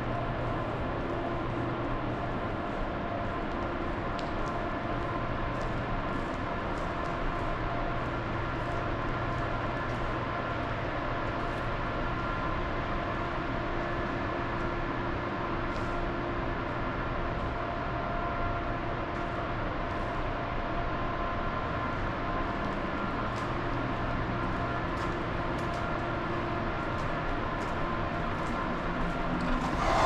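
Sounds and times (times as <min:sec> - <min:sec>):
steady machinery hums: 0:00.0 - 0:30.0
low mechanical rumble: 0:28.6 - 0:30.0.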